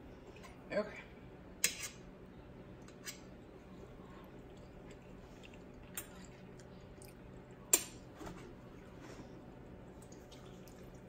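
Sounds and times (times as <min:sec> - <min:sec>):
low steady hum: 0:00.0 - 0:11.0
faint chewing: 0:03.6 - 0:07.7.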